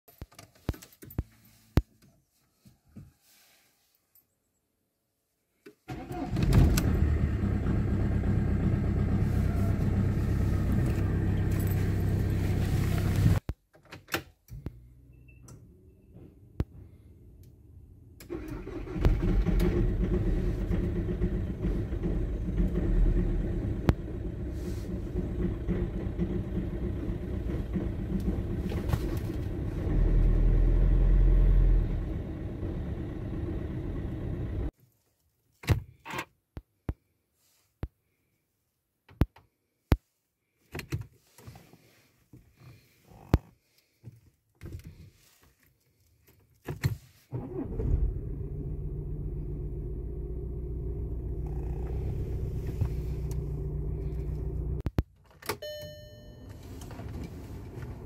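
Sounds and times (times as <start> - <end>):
car engine idling: 6.8 - 13.4, 18.4 - 34.7, 47.6 - 54.8.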